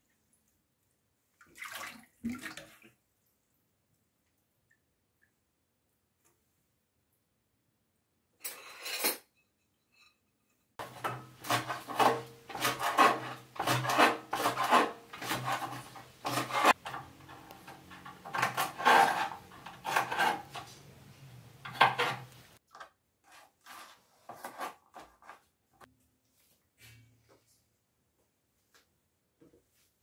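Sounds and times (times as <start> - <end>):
knife cutting on plastic board: 10.8 - 16.8.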